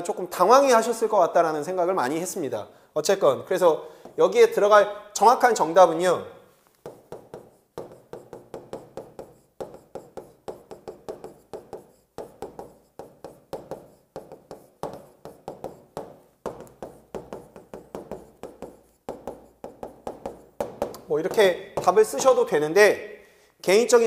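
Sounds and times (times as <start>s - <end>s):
stylus tapping and scraping glass: 6.7s - 22.2s.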